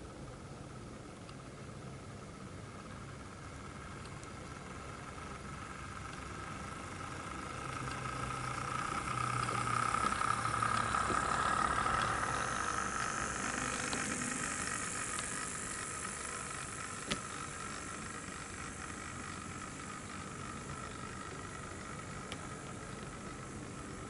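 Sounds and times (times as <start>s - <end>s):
model train whine and hum: 0.0s - 24.0s
faint clicks: 4.0s - 4.6s, 8.7s - 24.0s.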